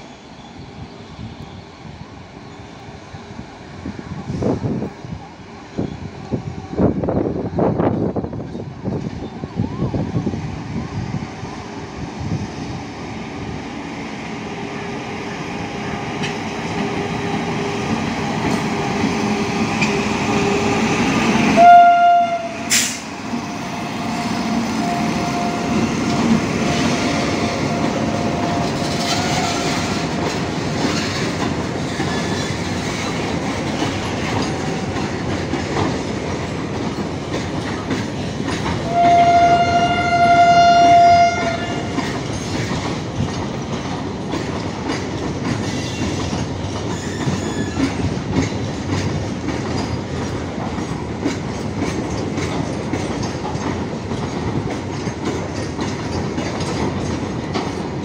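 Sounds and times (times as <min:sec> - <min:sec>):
freight train rolling past: 0:00.0 - 0:58.0
locomotive horn blasts: 0:19.8 - 0:30.0, 0:38.9 - 0:42.0
wheels clacking over rail joints: 0:24.1 - 0:58.0.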